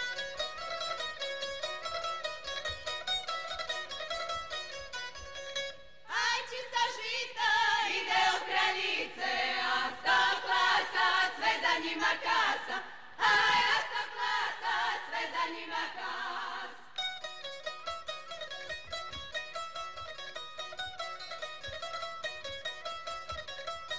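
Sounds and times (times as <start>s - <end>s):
plucked strings: 0.0s - 6.4s, 13.2s - 23.9s
women singing unaccompanied: 6.1s - 16.9s.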